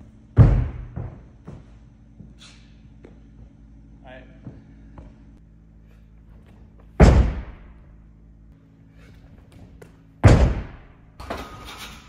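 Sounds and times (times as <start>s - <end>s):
heavy thuds of landings: 0.3s - 1.8s, 6.8s - 7.8s, 9.5s - 11.0s.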